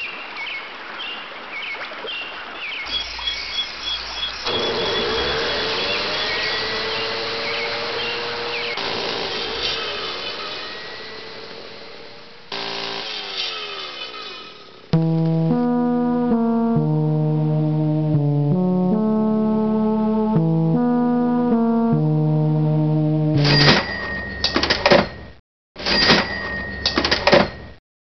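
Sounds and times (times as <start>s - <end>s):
noisy sound with sudden burst: 4.4s - 14.2s
electronic keyboard chords: 15.0s - 23.5s
cash register sound: 23.4s - 27.7s.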